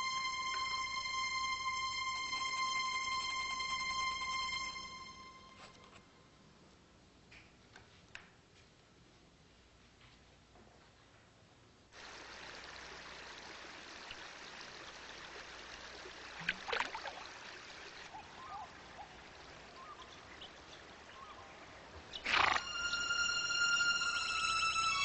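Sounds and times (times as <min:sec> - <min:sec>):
music with held tones: 0:00.0 - 0:06.0, 0:22.3 - 0:25.0.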